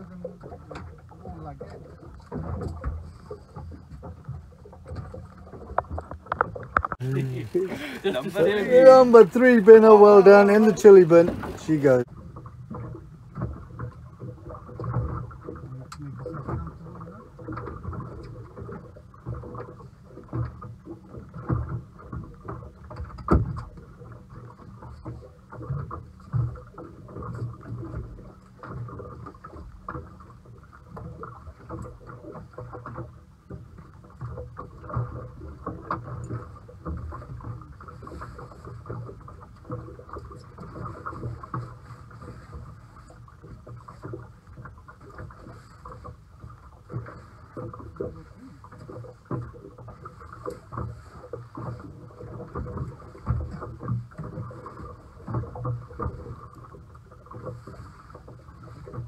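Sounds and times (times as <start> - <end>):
boat knocking: 0.0 - 38.0
water sloshing: 0.0 - 59.0.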